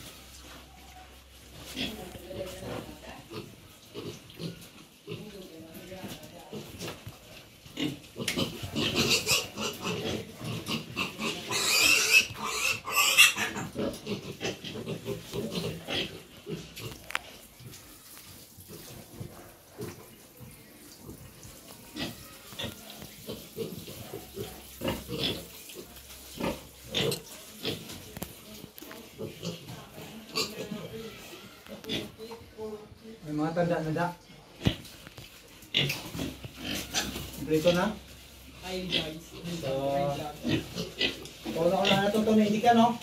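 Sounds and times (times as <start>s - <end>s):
pig sounds: 7.8s - 28.3s, 29.0s - 32.3s, 35.6s - 38.0s, 38.7s - 42.8s
piglets squealing: 8.8s - 15.0s.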